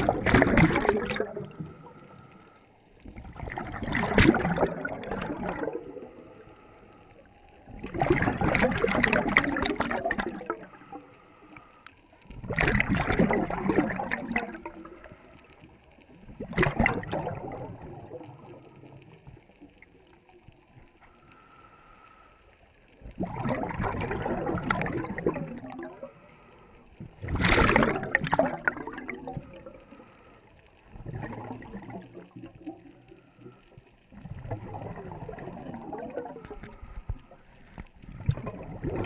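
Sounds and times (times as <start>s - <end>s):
exhaled breath bubbling underwater: 0.0s - 19.8s, 22.9s - 39.0s
regulator inhale hiss: 1.5s - 3.0s, 6.1s - 7.7s, 10.7s - 12.2s, 21.0s - 22.9s, 26.0s - 27.0s, 29.5s - 30.9s.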